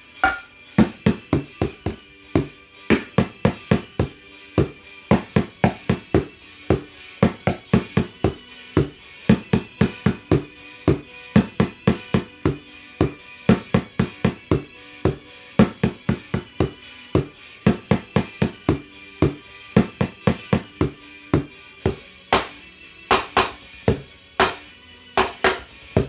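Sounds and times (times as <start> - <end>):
utensils drumming on bowls and pot: 0.2 - 6.2.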